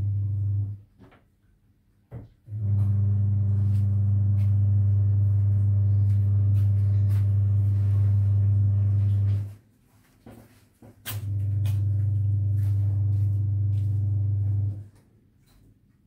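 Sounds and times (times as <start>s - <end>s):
steady low hum: 0.0s - 0.8s, 2.5s - 9.6s, 11.1s - 14.9s.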